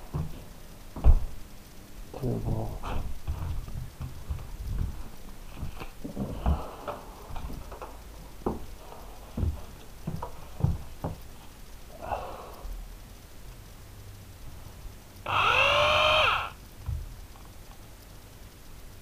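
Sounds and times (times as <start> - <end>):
light knocks and taps: 3.2 - 8.7, 9.3 - 11.3.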